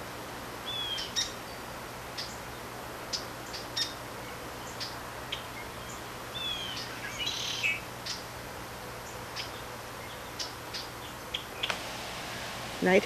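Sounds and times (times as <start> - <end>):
bird twitter: 0.7 - 1.6, 4.6 - 8.3
songbird chip notes: 9.0 - 13.0.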